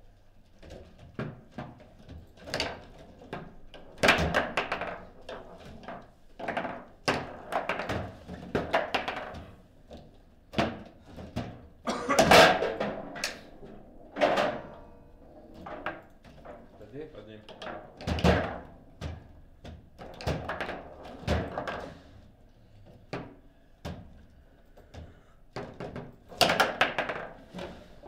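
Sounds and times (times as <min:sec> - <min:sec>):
foosball figures striking ball: 0:02.4 - 0:09.6, 0:10.5 - 0:16.8, 0:17.5 - 0:22.0, 0:25.6 - 0:27.6.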